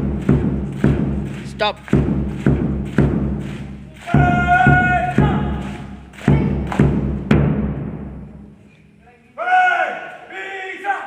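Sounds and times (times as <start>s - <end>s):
bass drum beats: 0.0s - 8.6s
person shouting drill command: 4.0s - 6.6s.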